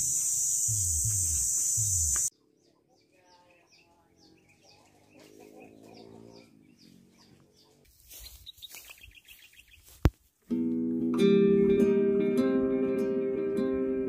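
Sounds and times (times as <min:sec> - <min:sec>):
small birds chirping: 0:00.0 - 0:10.1.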